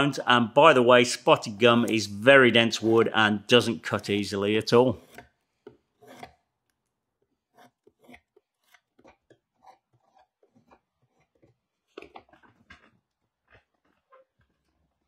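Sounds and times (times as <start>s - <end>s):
hand tool cutting wood: 1.5s - 13.1s.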